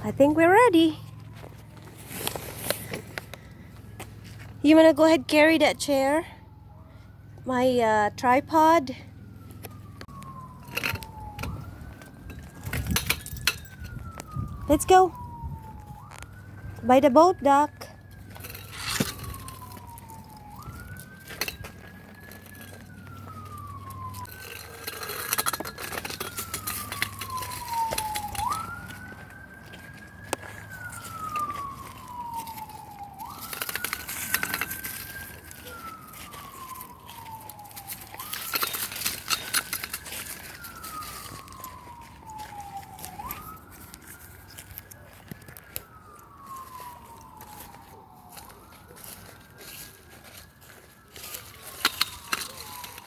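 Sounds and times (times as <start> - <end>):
siren wailing: 0.0 - 53.0
footsteps on dry leaves: 1.0 - 4.6, 18.0 - 53.0.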